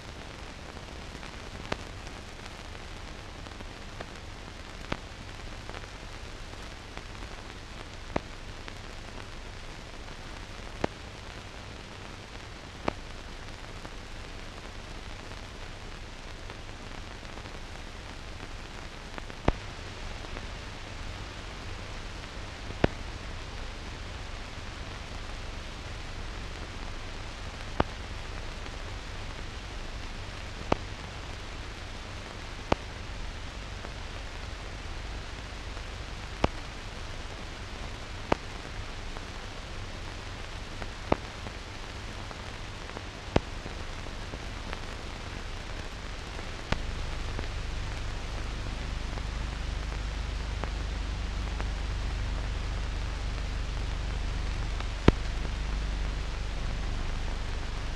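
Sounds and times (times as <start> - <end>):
steady film soundtrack hiss: 0.0 - 57.9
low hum: 45.2 - 57.9.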